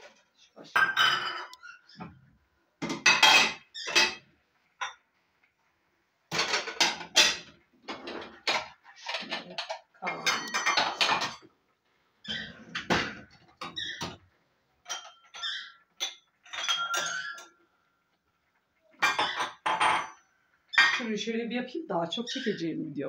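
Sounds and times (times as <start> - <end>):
ceramic plates clattering: 0.0 - 2.2, 2.8 - 5.0, 6.3 - 11.5, 12.3 - 14.2, 14.8 - 17.6, 18.9 - 20.2, 20.8 - 21.1.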